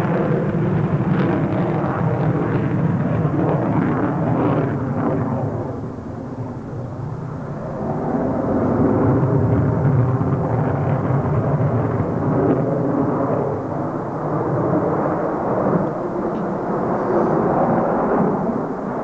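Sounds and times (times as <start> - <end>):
jet flying overhead: 0.0 - 19.0.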